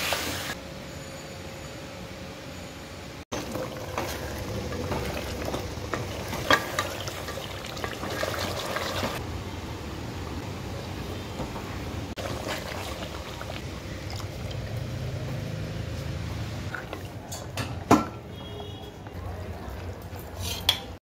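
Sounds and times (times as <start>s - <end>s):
liquid pouring and sloshing: 3.3s - 9.2s, 12.2s - 14.9s, 16.7s - 17.3s.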